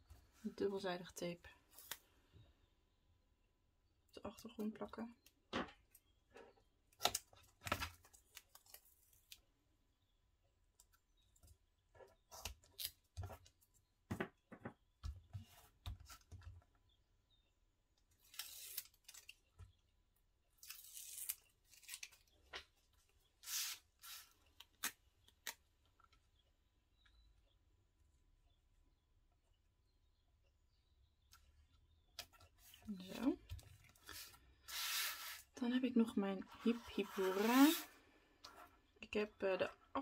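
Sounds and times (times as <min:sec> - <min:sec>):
tape ripping: 0:20.6 - 0:22.2
paper rustling: 0:33.8 - 0:35.5.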